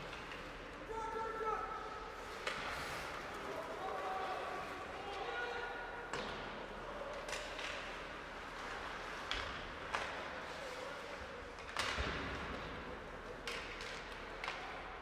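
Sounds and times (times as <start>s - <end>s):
hockey sticks and puck knocks: 2.3s - 3.3s, 6.0s - 10.8s, 11.4s - 15.0s.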